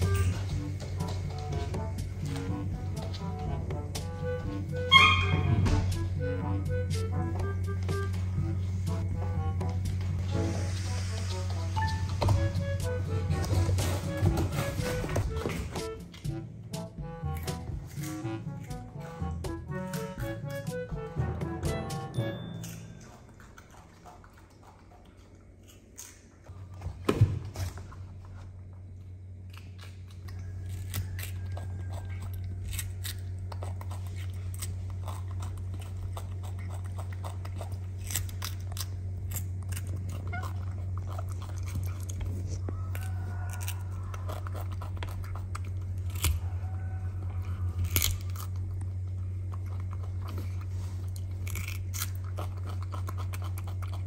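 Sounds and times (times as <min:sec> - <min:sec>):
steady low hum: 0:00.0 - 0:54.0
monkey crunching cucumber: 0:12.8 - 0:26.8, 0:29.1 - 0:54.0.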